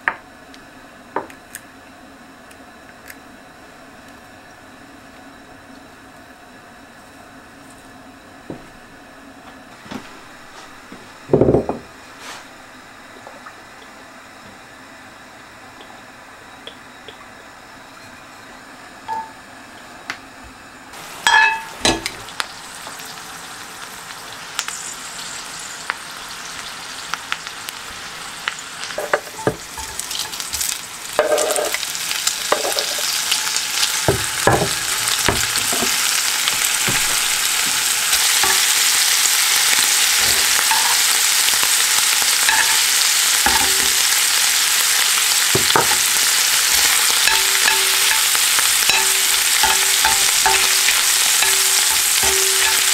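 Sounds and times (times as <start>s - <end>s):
frying sizzle in a skillet: 10.8s - 14.8s, 20.9s - 52.9s.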